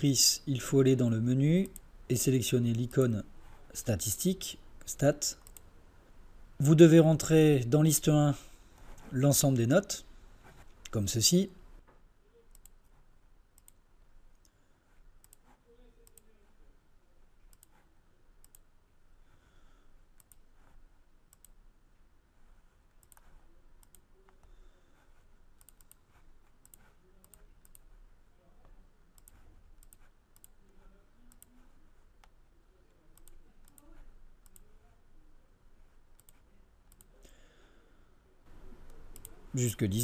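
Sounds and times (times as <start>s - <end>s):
computer mouse clicks: 1.6s - 1.9s, 5.4s - 5.8s, 12.5s - 13.0s, 13.6s - 16.3s, 17.4s - 17.8s, 18.4s - 18.7s, 20.2s - 21.6s, 23.0s - 24.5s, 25.6s - 27.9s, 29.2s - 32.4s, 33.1s - 34.7s, 36.1s - 37.4s, 38.7s - 39.4s.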